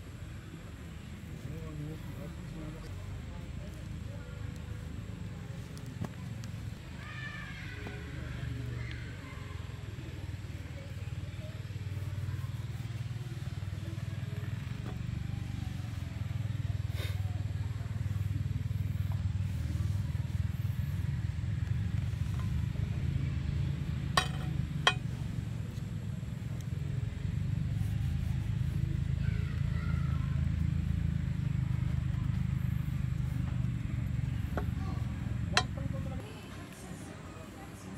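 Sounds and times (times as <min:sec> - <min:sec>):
low motor-like rumble: 0:00.0 - 0:36.4.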